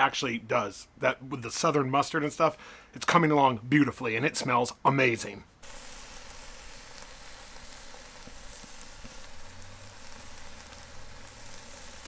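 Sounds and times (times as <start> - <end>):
steak sizzling on a grill: 5.6 - 12.0.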